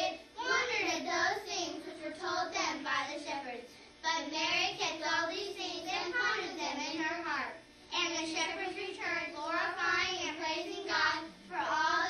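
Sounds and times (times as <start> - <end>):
children singing together: 0.0 - 2.6.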